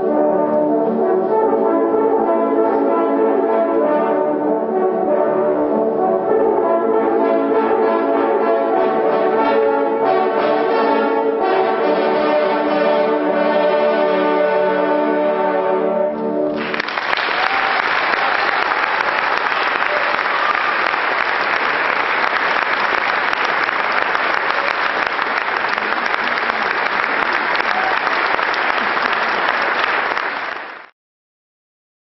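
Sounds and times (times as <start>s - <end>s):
french horn ensemble chord: 0.0s - 17.0s
audience applause: 16.5s - 30.9s.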